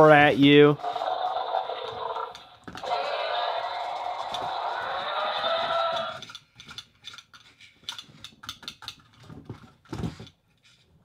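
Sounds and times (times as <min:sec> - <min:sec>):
toy motor and gears clicking: 0:00.1 - 0:10.4
toy dinosaur electronic roar: 0:00.8 - 0:06.4.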